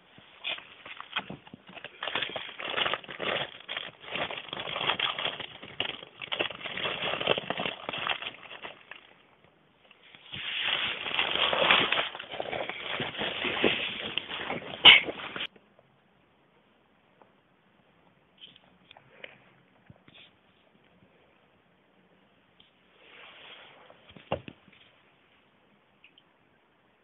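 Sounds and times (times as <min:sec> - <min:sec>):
rat crinkling plastic bag: 0:00.4 - 0:15.5.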